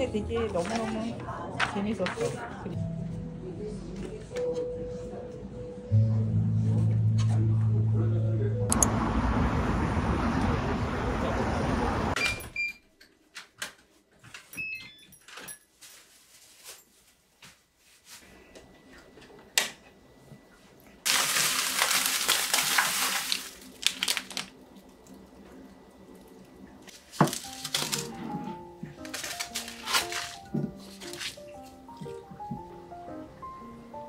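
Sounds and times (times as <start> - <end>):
plastic bag rustling: 15.7 - 18.2, 21.1 - 24.8, 26.9 - 32.2.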